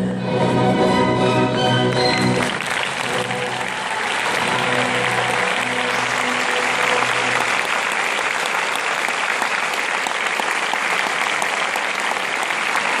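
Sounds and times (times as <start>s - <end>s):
orchestra held chord: 0.0s - 7.8s
audience applauding: 1.7s - 13.0s.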